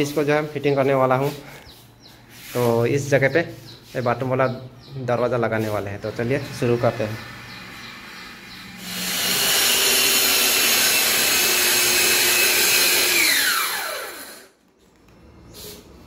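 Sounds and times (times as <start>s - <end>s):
circular saw cutting: 5.7s - 14.5s.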